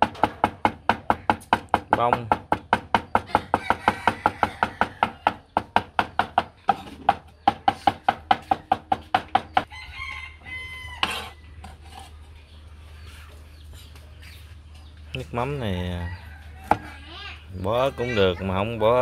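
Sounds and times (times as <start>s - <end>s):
cleaver chopping on wooden board: 0.0s - 9.7s
rooster crowing: 3.3s - 5.4s, 9.6s - 11.6s, 16.0s - 17.0s.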